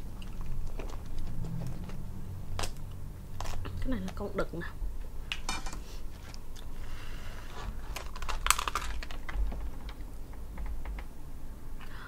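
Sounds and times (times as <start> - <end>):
crab shell cracking: 8.0 - 9.4.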